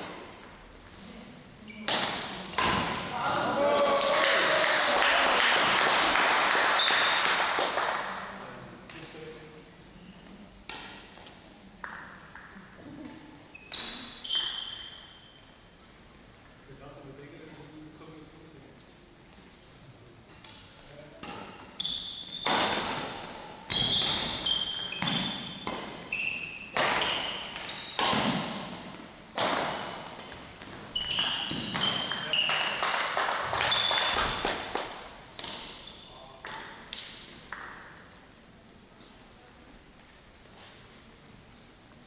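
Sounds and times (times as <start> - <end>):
shoes squeaking on court: 0.0 - 1.0, 13.5 - 15.4, 21.4 - 28.8, 30.2 - 32.8, 33.4 - 34.4, 35.3 - 36.1
racket striking shuttlecock: 10.7 - 11.1, 22.4 - 26.1, 26.7 - 30.4.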